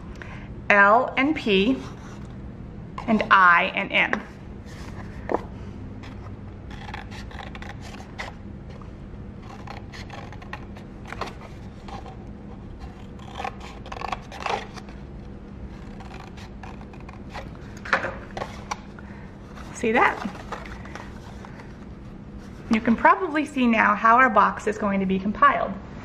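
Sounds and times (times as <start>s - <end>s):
scissors snipping paper: 6.7s - 8.3s, 9.4s - 12.1s, 12.8s - 14.8s, 15.8s - 17.5s
paper rustling: 19.5s - 22.8s.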